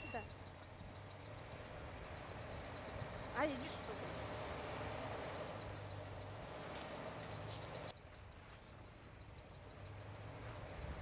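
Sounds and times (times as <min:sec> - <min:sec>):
petrol engine idling: 0:00.0 - 0:07.9.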